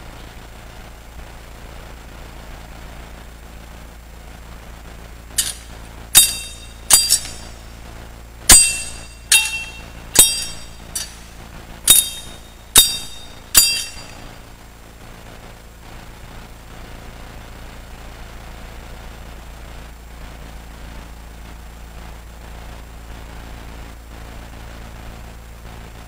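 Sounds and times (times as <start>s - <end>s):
censer chains clinking: 5.4s - 7.7s, 8.5s - 14.4s.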